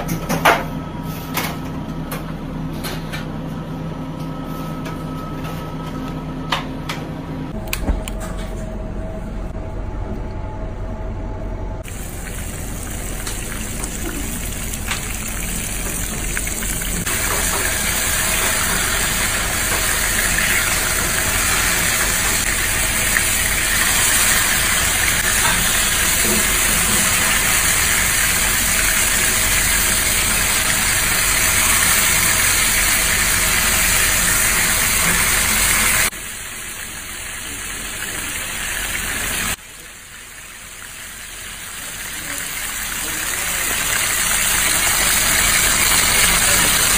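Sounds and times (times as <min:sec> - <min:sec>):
fish sizzling in hot oil: 0:11.8 - 0:46.9.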